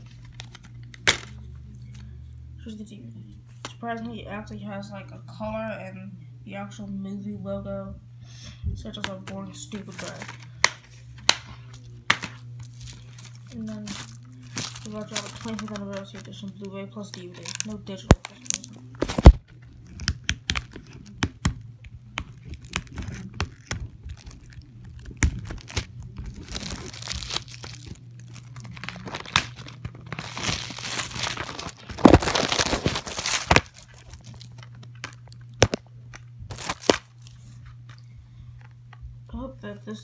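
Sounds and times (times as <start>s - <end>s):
plastic wrap tearing and crinkling: 0.0s - 1.4s, 9.7s - 37.5s
low steady hum: 0.0s - 40.0s.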